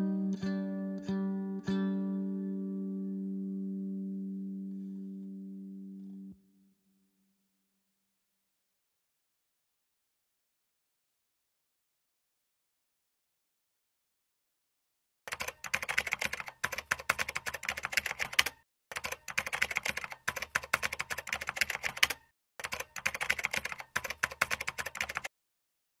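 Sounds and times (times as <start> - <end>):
fast keyboard key clicks: 15.3 - 25.3.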